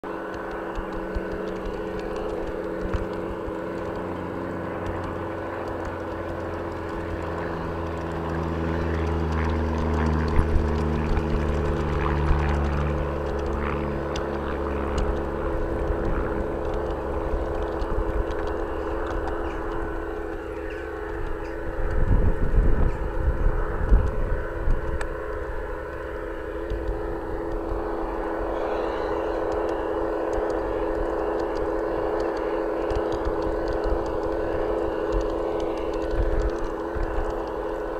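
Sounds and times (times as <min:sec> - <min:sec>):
electric motor hum: 0:00.0 - 0:37.9
wheels clicking over rail joints: 0:00.0 - 0:37.9.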